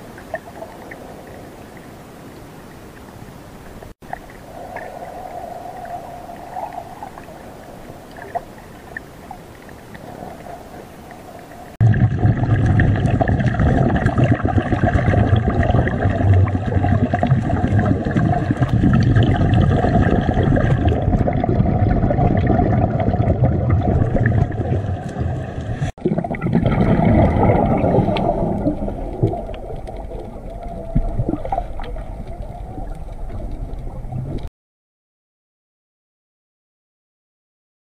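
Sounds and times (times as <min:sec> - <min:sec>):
muffled rush of underwater water: 0:00.0 - 0:34.5
low rumble: 0:26.7 - 0:34.5.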